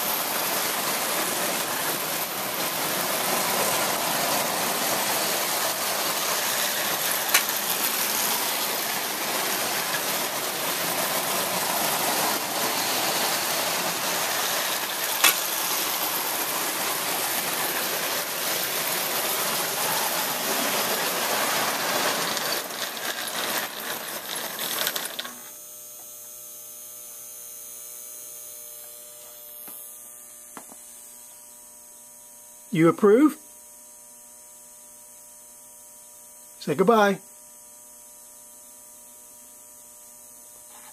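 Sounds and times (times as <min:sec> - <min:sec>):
toy train running on track: 0:00.0 - 0:26.4, 0:40.6 - 0:40.9
steady electrical hum: 0:00.0 - 0:40.9.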